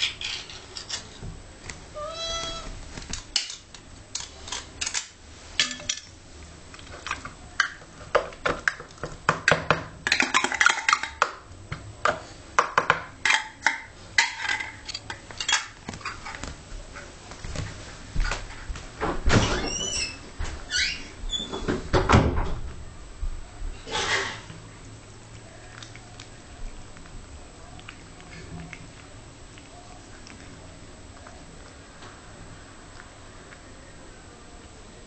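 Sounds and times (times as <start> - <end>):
cat meowing: 1.9 - 2.8.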